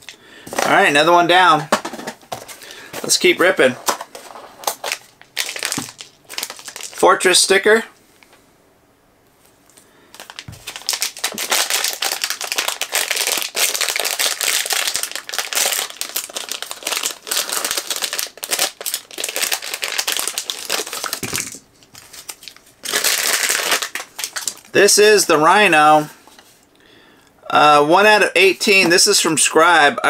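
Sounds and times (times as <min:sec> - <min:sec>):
foil bag crinkling: 0:01.8 - 0:07.0, 0:10.1 - 0:25.1.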